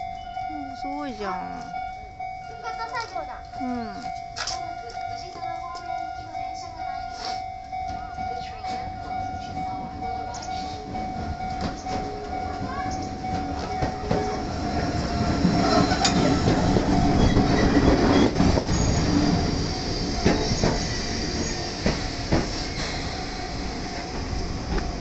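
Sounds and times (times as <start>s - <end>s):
train brakes squealing: 7.0s - 24.6s
train wheels clicking over rail joints: 7.9s - 25.0s.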